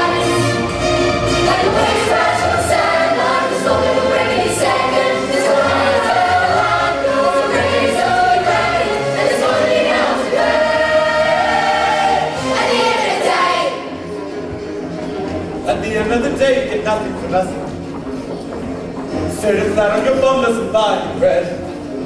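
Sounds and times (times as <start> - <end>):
chorus singing loudly: 0.0 - 14.1.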